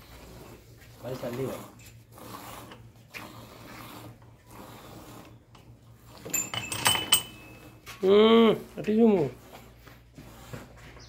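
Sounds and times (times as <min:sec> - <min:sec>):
metallic clinks: 0:06.2 - 0:07.7.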